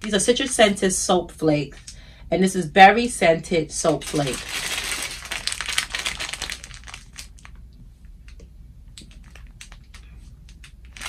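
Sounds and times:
plastic packets crinkling: 0.0s - 0.8s, 3.8s - 7.6s, 9.0s - 11.0s.

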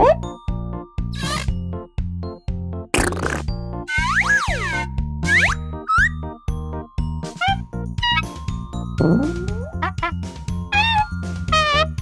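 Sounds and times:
upbeat children's music: 0.0s - 12.0s.

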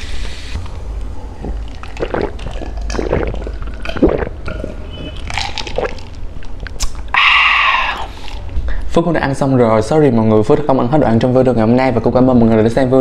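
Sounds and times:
person gulping a drink: 0.6s - 8.6s.

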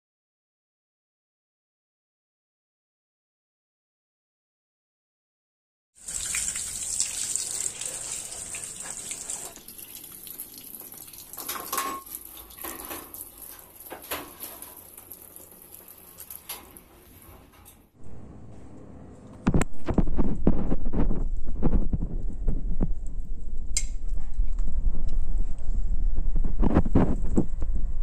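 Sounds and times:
water running from a tap: 6.0s - 17.2s.

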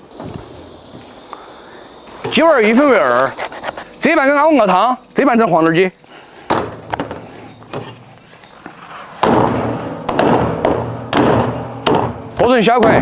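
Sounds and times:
cleaver chopping on wooden block: 10.1s - 13.0s.

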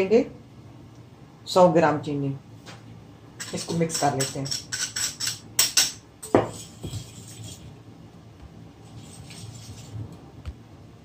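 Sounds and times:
whisk scraping glass bowl: 3.4s - 5.4s, 6.4s - 7.8s, 8.8s - 10.0s.

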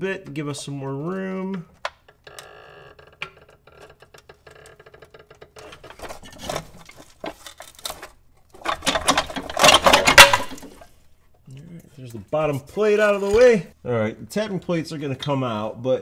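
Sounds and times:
metallic clattering and scraping: 5.4s - 11.0s.

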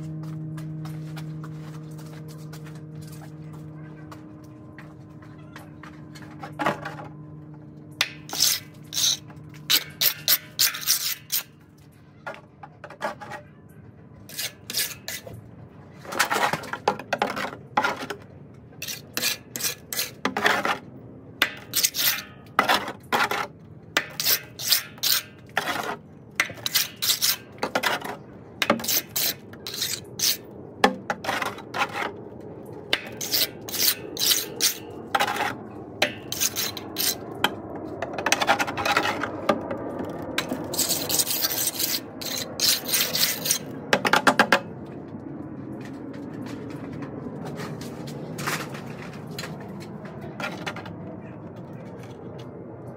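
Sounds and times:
trowel scraping stucco: 8.0s - 13.6s, 14.3s - 32.2s, 32.9s - 44.5s.

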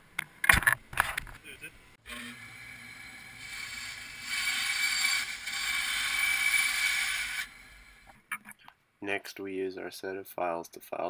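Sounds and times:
bandsaw cutting plastic pipe: 2.0s - 8.2s.

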